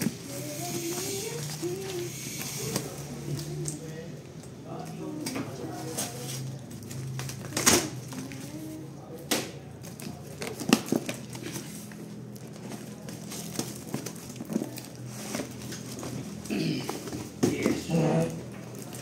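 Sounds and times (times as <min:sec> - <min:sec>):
cardboard crackles and knocks: 0:10.0 - 0:17.9.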